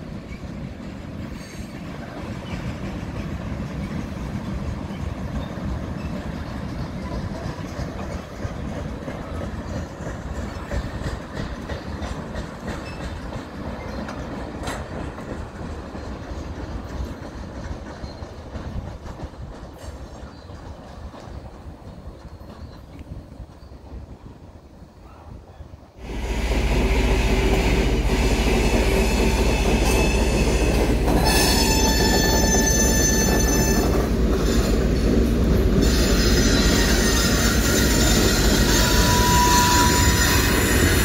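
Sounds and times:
train wheels rolling on rail: 0.0s - 41.0s.

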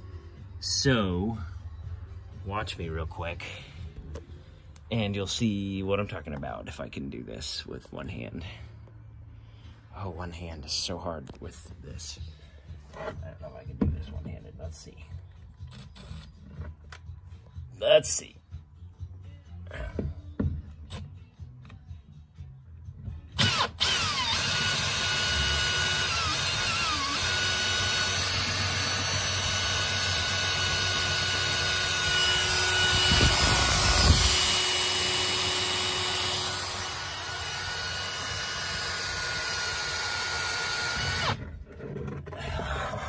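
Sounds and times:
power drill running: 23.4s - 41.5s.

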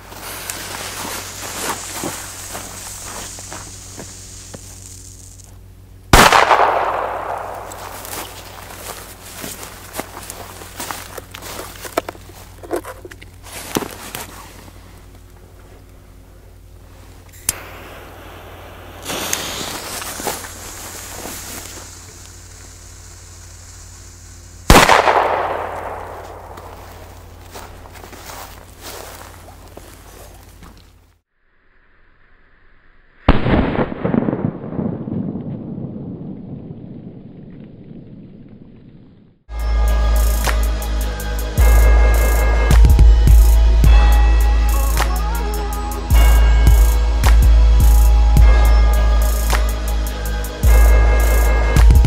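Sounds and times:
fuse hissing: 0.0s - 5.6s, 16.9s - 29.2s
long rumble: 0.0s - 52.0s
firecracker bang: 6.2s - 8.9s, 17.6s - 21.8s, 24.7s - 27.2s, 33.3s - 36.6s.

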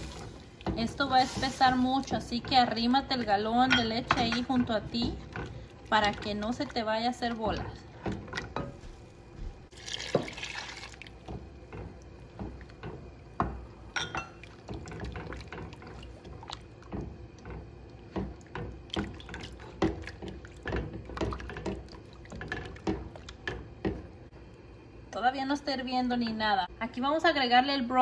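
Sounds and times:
liquid sloshing: 0.0s - 8.9s, 9.7s - 24.2s
liquid pouring: 9.7s - 11.3s.

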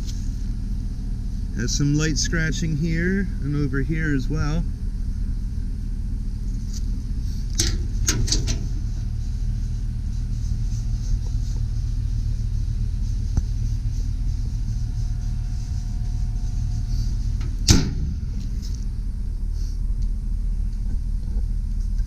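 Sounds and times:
steady low rumble: 0.0s - 22.0s
metal compartment door clattering: 7.5s - 8.8s.

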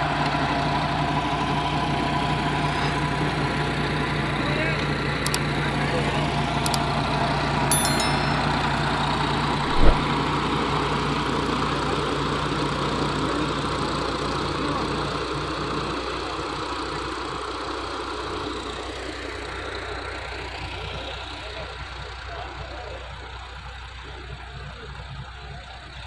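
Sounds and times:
short thump: 9.7s - 10.1s.

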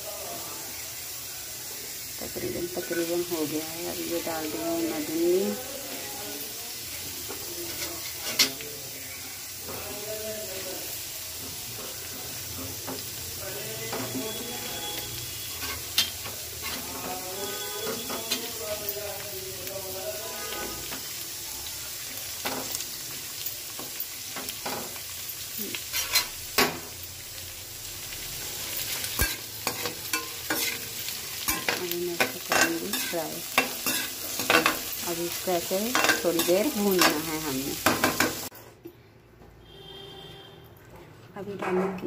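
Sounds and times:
okra sizzling in oil: 0.0s - 38.6s
metal spatula scraping pan: 13.9s - 18.8s, 25.9s - 26.4s, 29.1s - 34.9s.

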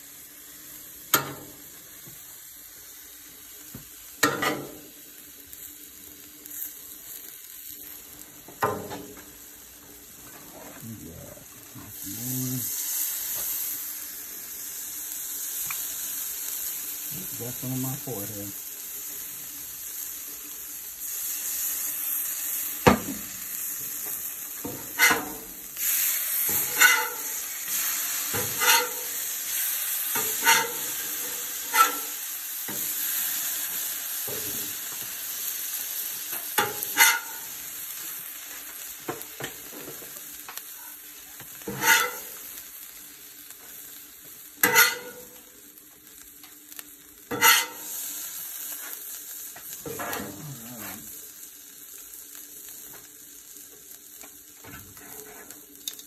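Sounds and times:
tacos sizzling in oil: 0.0s - 56.0s
metal spatula clacking on griddle: 4.2s - 4.8s, 24.7s - 25.4s, 26.5s - 27.3s, 28.3s - 29.1s, 30.1s - 30.8s, 31.7s - 32.1s, 36.5s - 37.4s, 41.6s - 42.3s, 44.6s - 45.4s, 47.3s - 47.9s.

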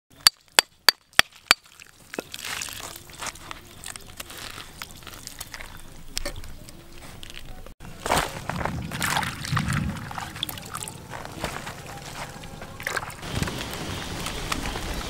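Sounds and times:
fruit rind crackling and tearing: 1.2s - 9.2s.

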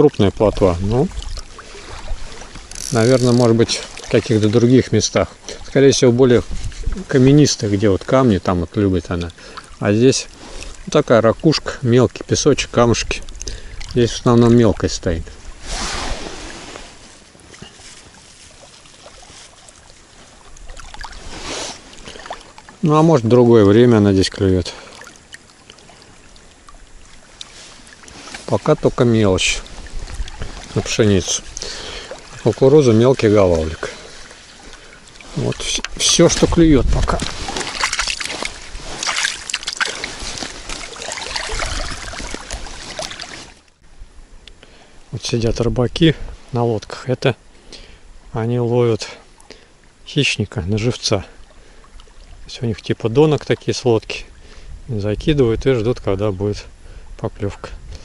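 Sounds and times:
water lapping at shore: 0.0s - 45.4s, 49.0s - 54.8s
faint clicks: 13.2s - 13.9s.

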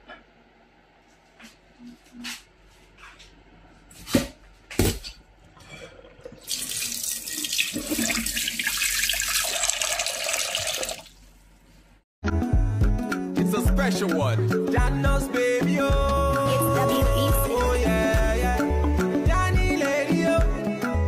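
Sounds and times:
tap water running into metal pot: 6.2s - 11.1s.

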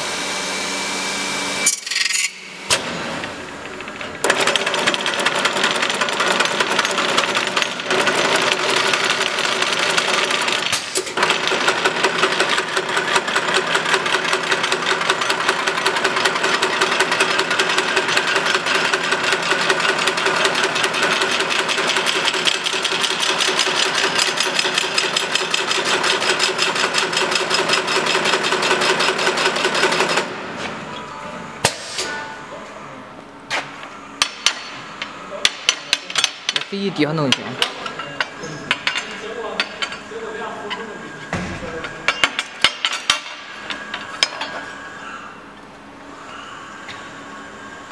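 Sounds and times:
bending machine mechanical clatter: 1.7s - 30.4s.

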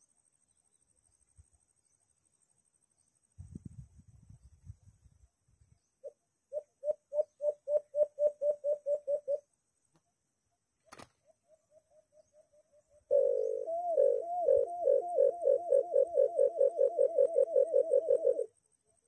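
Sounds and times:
dove calling hollow notes: 6.0s - 9.5s, 11.2s - 18.5s.

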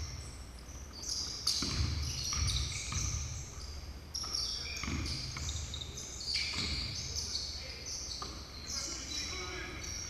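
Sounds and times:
sneakers squeaking: 0.0s - 10.0s
basketball bouncing on hardwood floor: 1.6s - 3.2s.

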